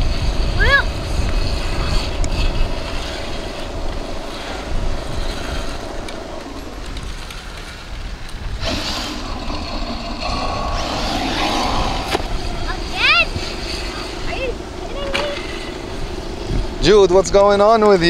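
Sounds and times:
electric motor whine: 0.0s - 16.9s
wind buffeting microphone: 0.0s - 18.0s
burst of hiss: 8.6s - 12.4s.

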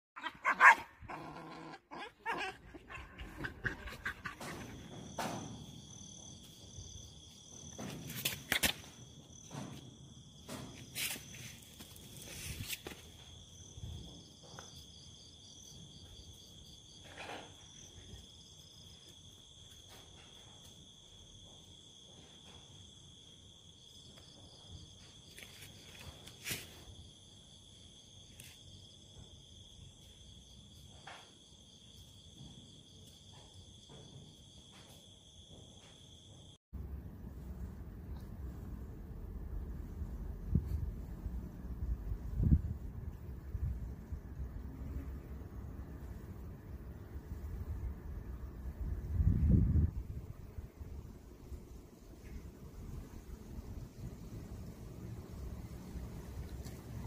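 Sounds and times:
dog barking: 0.2s - 1.3s
crickets chirping: 0.2s - 57.0s
knocks and scuffles: 4.0s - 13.4s.

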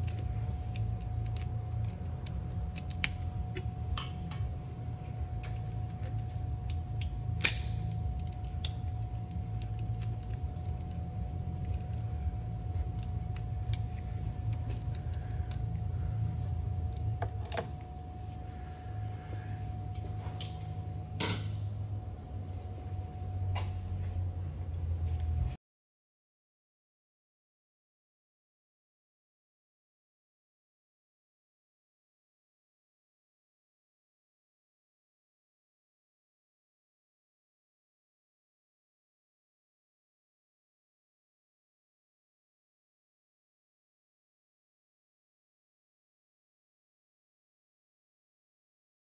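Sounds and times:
steady low hum: 0.0s - 25.6s.

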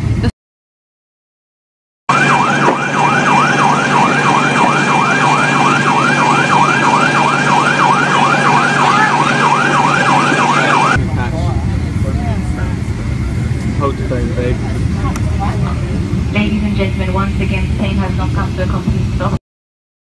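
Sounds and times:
emergency siren yelping: 2.1s - 13.2s
steady low hum: 2.1s - 19.4s.

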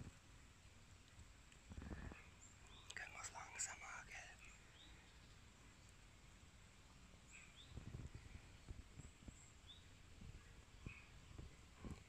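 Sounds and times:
faint bird chirps: 1.7s - 6.0s, 7.2s - 12.0s
soft rustles and thumps: 7.7s - 9.4s, 10.1s - 12.0s.

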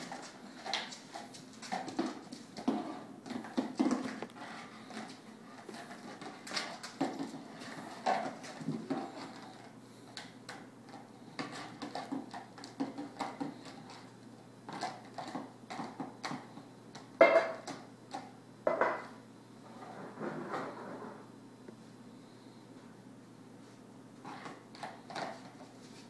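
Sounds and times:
plastic bowl clattering on tiles: 0.0s - 9.6s, 10.5s - 19.1s, 24.3s - 25.8s.

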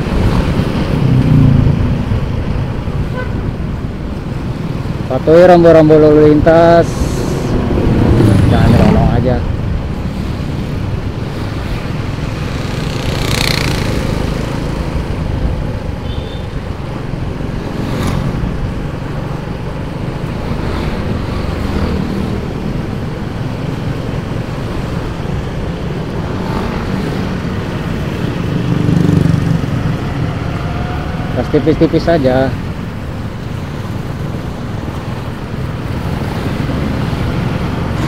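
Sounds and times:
motorcycle engine and road noise: 0.0s - 38.0s
traffic: 0.0s - 38.0s.

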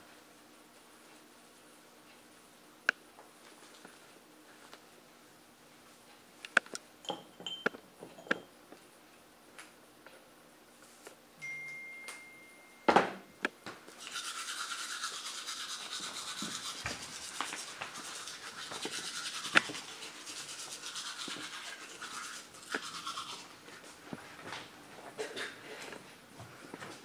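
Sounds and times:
toothbrush scrubbing teeth: 13.9s - 24.0s.

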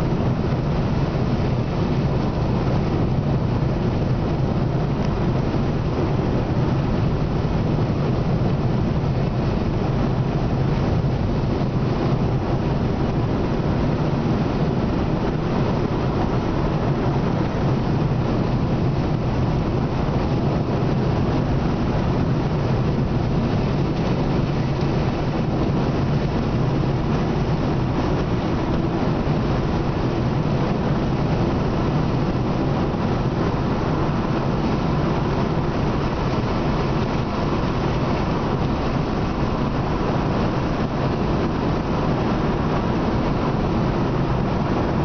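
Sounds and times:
car engine and tyre noise: 0.0s - 45.0s.

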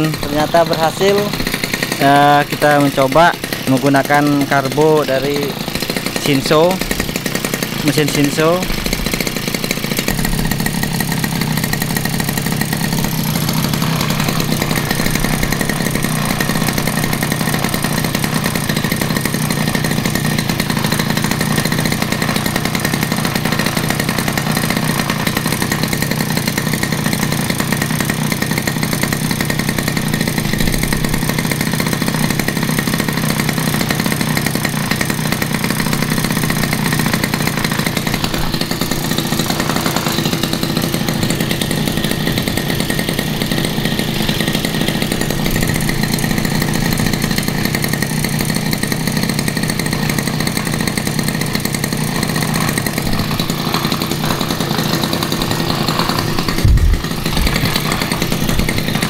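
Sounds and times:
brush-cutter engine running: 0.0s - 59.0s.

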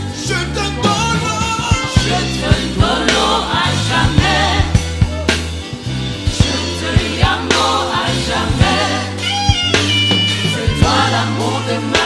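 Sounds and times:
bass line: 0.0s - 12.0s
backing singers: 0.9s - 5.3s, 6.3s - 9.4s, 10.3s - 12.0s.

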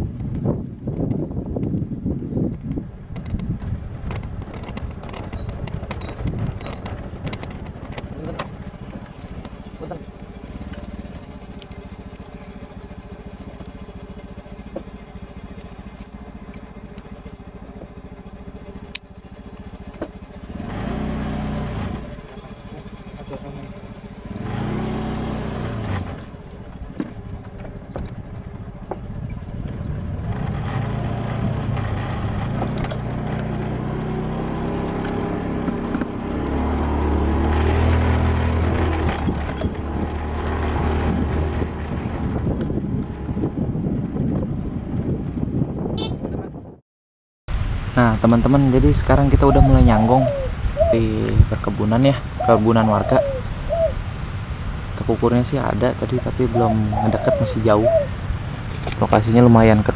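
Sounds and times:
small motorcycle engine revving: 4.0s - 46.2s.

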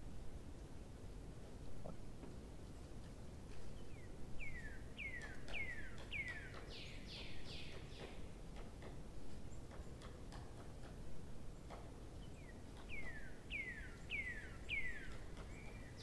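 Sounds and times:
bird calling: 4.0s - 8.2s, 12.8s - 16.0s.

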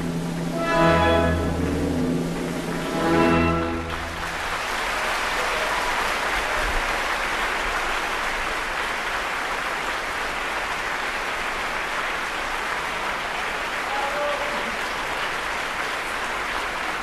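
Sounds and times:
orchestra closing chord: 0.0s - 4.6s
audience applause: 0.0s - 17.0s.

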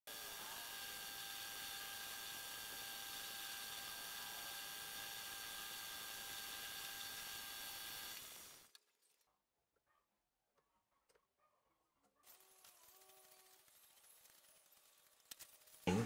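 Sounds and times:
metal lathe whining: 0.1s - 8.7s.

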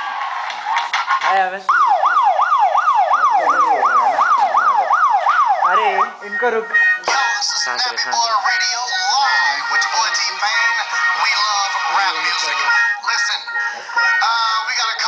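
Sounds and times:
yelping siren effect: 1.7s - 14.8s
chopped dance music: 5.8s - 15.0s.

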